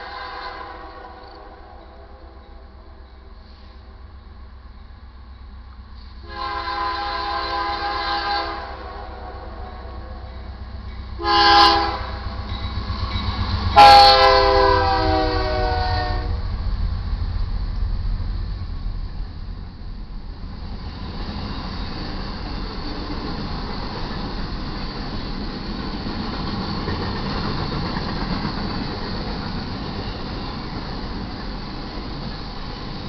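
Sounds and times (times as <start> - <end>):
locomotive air horn blasts: 0.0 - 2.1, 6.2 - 10.3, 11.2 - 12.4, 13.8 - 16.4
freight train rumbling: 0.0 - 33.0.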